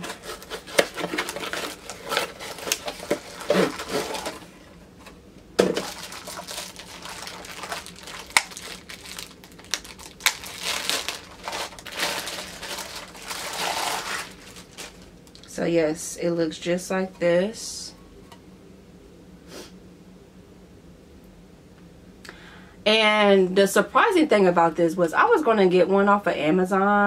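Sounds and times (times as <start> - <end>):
packaging crinkling: 0.0 - 4.7, 5.6 - 15.5.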